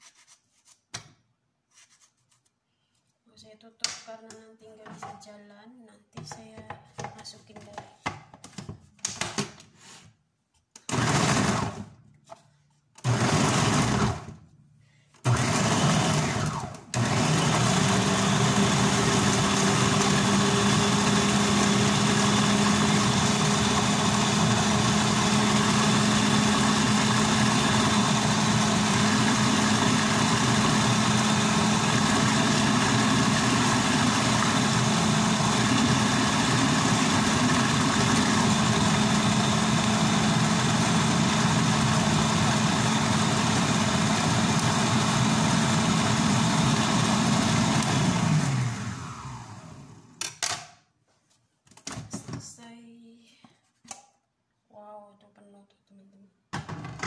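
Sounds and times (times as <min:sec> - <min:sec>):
food processor motor: 0:10.8 - 0:12.0, 0:13.0 - 0:14.4, 0:15.2 - 0:50.2.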